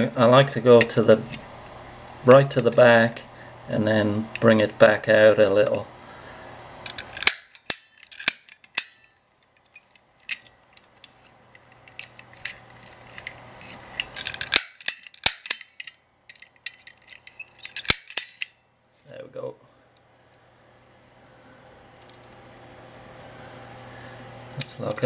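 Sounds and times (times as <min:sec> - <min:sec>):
lock pick gun snapping: 0:06.9 - 0:10.4, 0:14.0 - 0:18.5.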